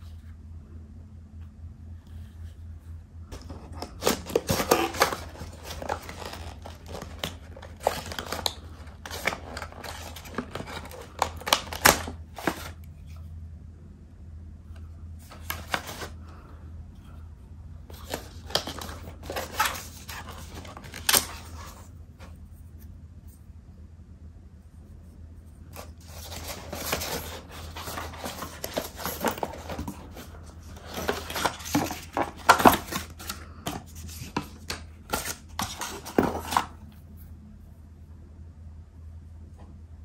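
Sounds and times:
cardboard and cable rustling: 2.1s - 13.2s, 15.2s - 16.3s, 17.8s - 22.5s, 25.6s - 37.0s.

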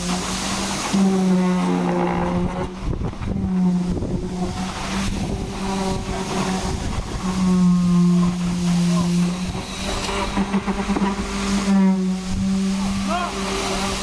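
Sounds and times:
concrete pump humming: 0.0s - 14.0s.

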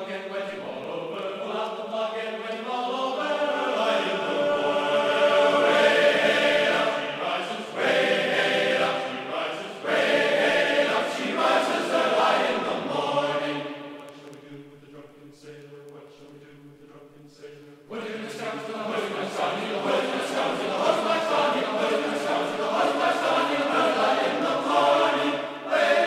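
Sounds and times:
choir singing a sea shanty: 0.0s - 26.0s.

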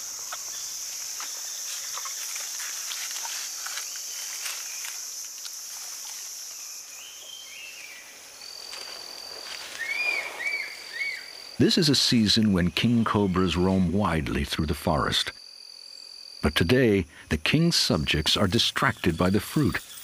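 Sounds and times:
insect chorus: 0.0s - 20.0s
light crackles: 0.3s - 6.6s
bird chirps: 9.6s - 11.5s
high bird whistle: 9.8s - 11.3s.

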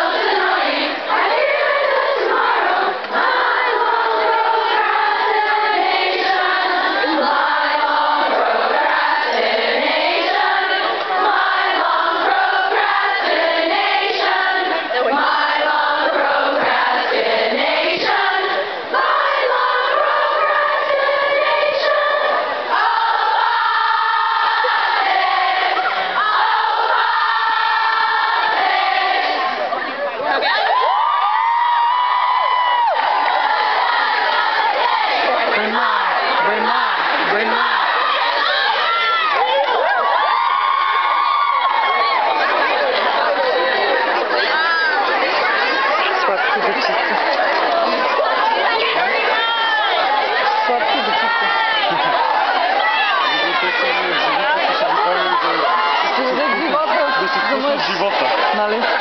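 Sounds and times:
crowd of women singing: 0.0s - 59.0s.

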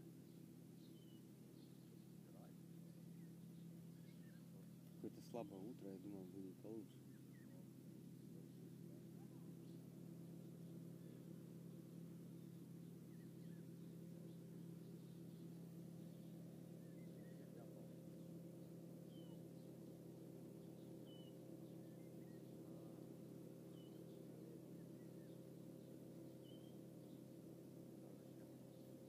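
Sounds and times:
steady low hum: 0.0s - 29.0s
small bird chirping: 0.2s - 2.5s, 3.1s - 4.8s, 12.3s - 20.0s, 20.6s - 23.0s, 23.6s - 27.3s.

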